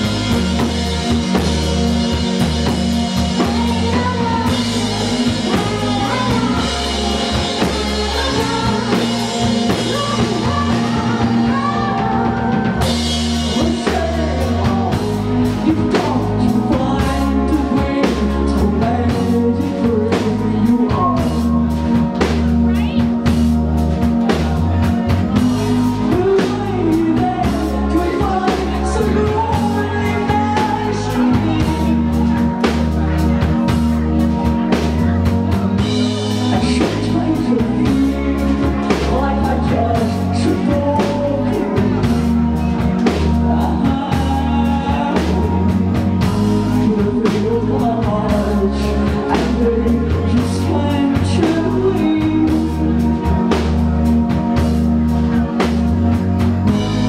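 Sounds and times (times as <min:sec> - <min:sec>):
live rock band: 0:00.0 - 0:57.0
woman singing: 0:02.6 - 0:21.8, 0:25.6 - 0:33.4, 0:36.4 - 0:53.7.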